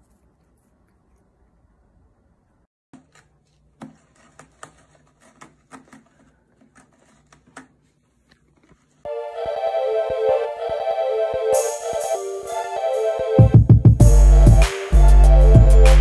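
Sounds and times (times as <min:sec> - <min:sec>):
keyboard music: 0:09.1 - 0:16.0.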